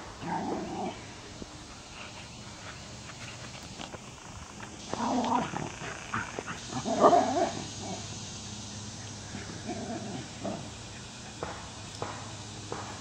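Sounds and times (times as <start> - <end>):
dogs barking: 4.9 - 8.1.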